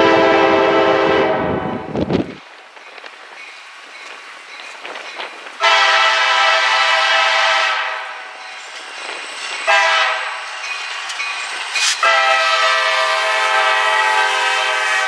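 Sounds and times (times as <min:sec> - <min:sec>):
diesel locomotive horn blasts: 0:00.0 - 0:02.0, 0:05.6 - 0:08.2, 0:09.7 - 0:10.4, 0:12.0 - 0:15.0
low train rumble: 0:00.0 - 0:15.0.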